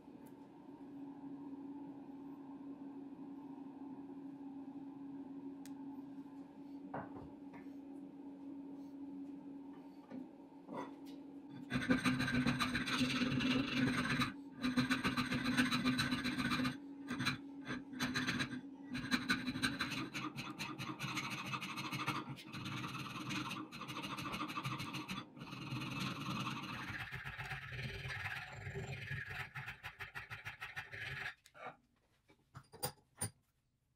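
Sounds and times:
file rasping on steel: 11.6s - 31.7s.

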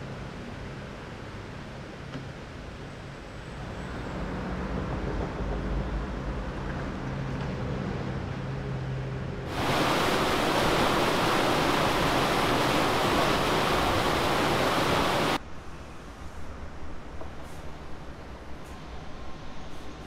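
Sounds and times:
river white water rushing: 9.5s - 15.4s.

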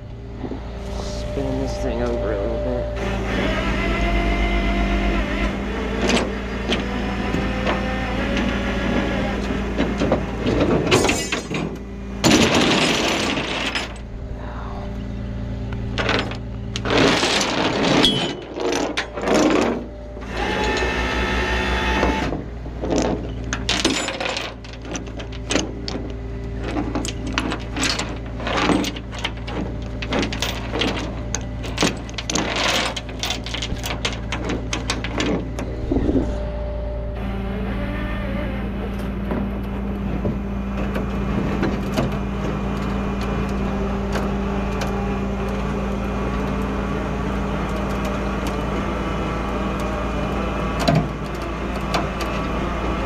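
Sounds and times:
tow truck engine idling: 33.7s - 53.0s.

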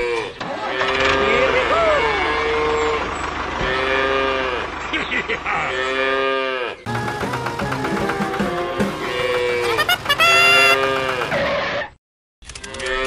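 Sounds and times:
cattle mooing: 0.0s - 4.8s, 5.6s - 11.6s
rhythmic music: 6.9s - 10.8s.

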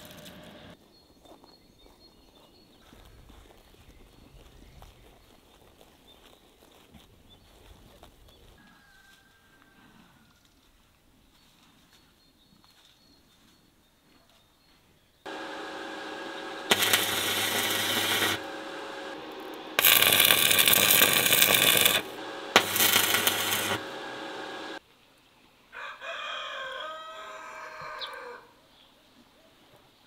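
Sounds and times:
welding arc crackling and buzzing: 0.0s - 0.8s, 15.3s - 24.8s
rooster crowing: 8.6s - 10.4s, 25.7s - 28.5s
steady hum: 15.3s - 24.8s.

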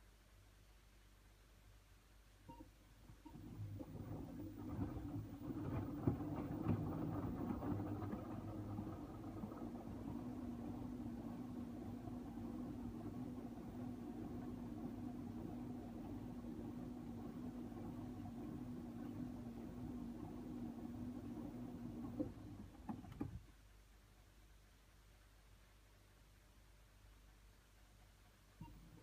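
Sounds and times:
washing machine motor humming: 3.1s - 23.4s.

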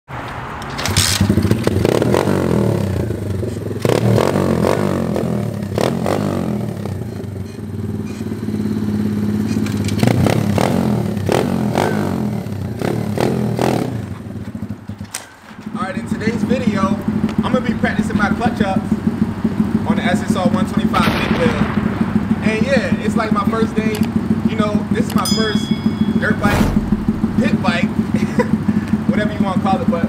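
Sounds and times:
motorbike engine kick-started: 0.7s - 1.8s
motorbike engine revving: 0.8s - 14.9s.

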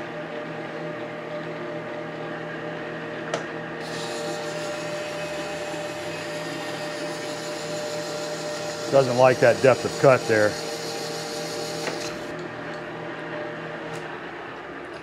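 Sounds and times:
cutting tool hiss: 3.8s - 12.3s
lathe gear whine: 3.8s - 14.6s.

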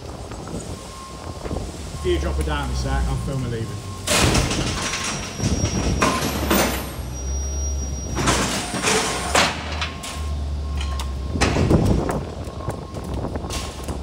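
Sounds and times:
metal gates clanking: 4.0s - 11.8s.

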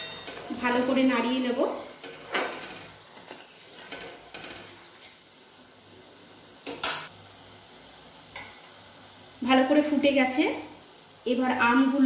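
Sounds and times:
metal spatula scraping a metal pan: 0.0s - 5.2s.

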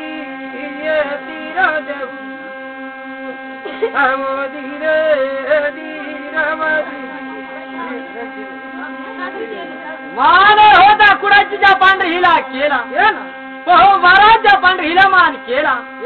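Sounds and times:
person singing: 0.0s - 2.2s, 3.6s - 8.3s
buzzing drone of rubbed brass plate: 0.0s - 16.0s.

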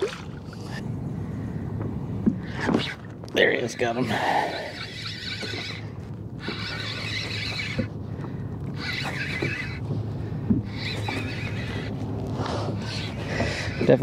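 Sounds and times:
fishing reel whirring: 3.7s - 7.9s, 8.8s - 9.8s, 10.7s - 11.9s, 12.8s - 14.0s.

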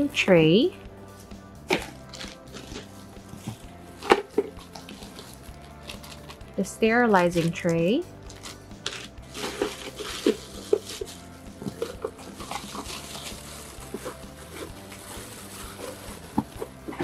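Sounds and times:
plastic bag crinkling: 8.3s - 16.6s.

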